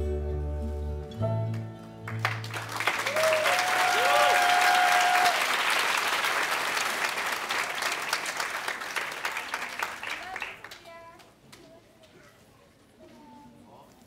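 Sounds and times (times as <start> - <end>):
audience applause: 2.1 - 11.0
person cheering: 3.0 - 5.5.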